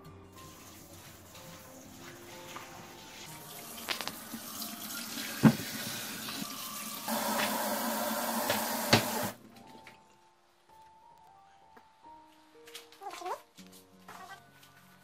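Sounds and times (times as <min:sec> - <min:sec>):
faucet water running into sink: 0:00.4 - 0:01.9, 0:03.4 - 0:09.4.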